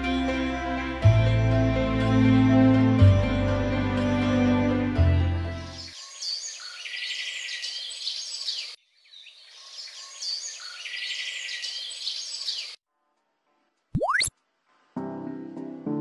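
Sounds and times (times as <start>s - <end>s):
birds chirping and trilling: 5.7s - 12.8s.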